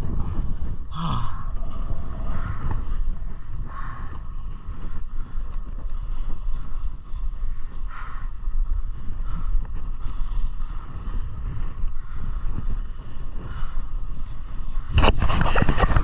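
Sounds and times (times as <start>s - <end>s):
wind buffeting microphone: 0.0s - 16.0s
ski edges scraping snow: 14.2s - 16.0s.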